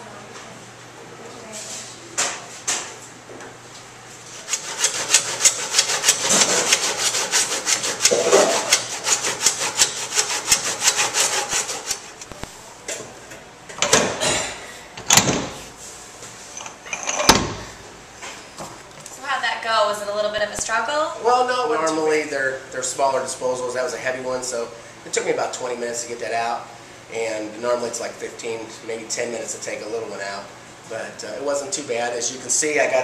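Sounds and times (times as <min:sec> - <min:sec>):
hand sawing: 0:04.3 - 0:12.2.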